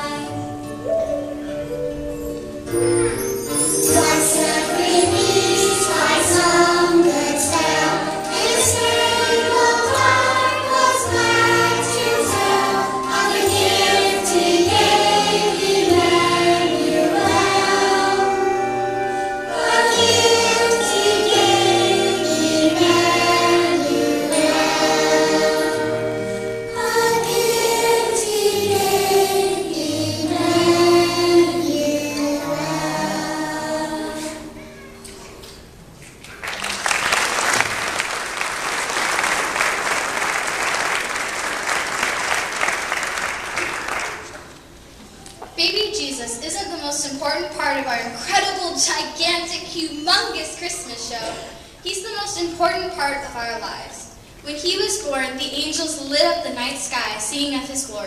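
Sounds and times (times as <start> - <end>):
children's choir singing: 0.0 - 34.8
instrumental accompaniment: 0.0 - 36.2.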